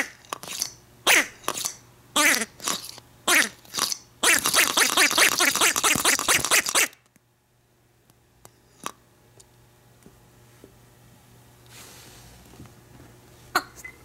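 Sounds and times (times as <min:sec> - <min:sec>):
squeeze toy squealing: 0:00.0 - 0:07.0.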